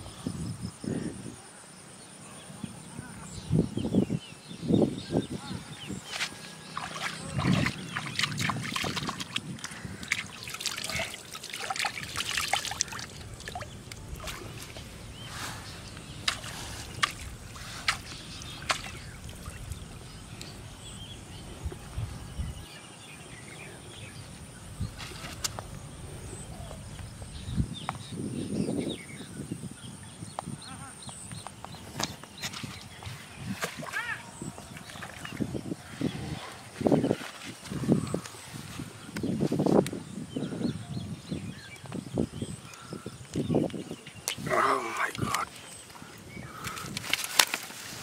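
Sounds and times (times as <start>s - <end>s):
hand splashing pond water: 6.1s - 15.3s, 16.1s - 20.5s.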